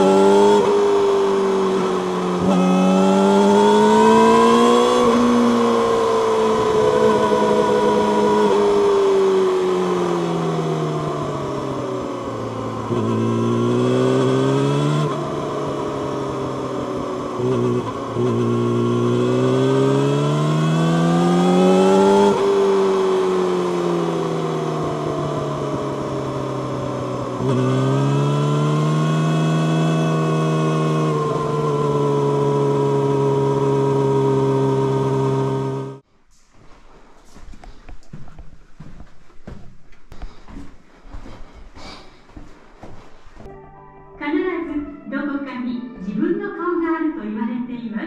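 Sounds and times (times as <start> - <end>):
motorcycle engine while riding: 0.0 - 36.1.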